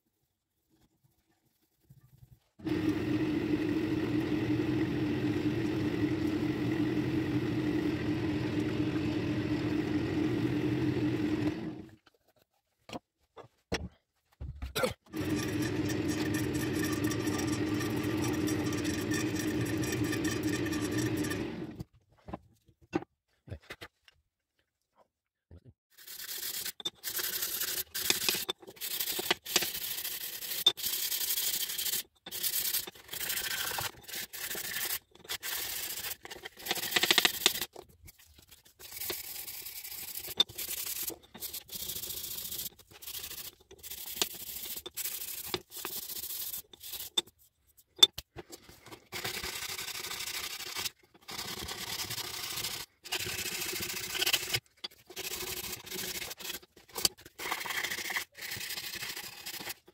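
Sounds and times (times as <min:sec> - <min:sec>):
sandpaper rubbing wood: 0:26.0 - 0:37.6, 0:49.2 - 0:56.7, 0:57.4 - 0:59.8.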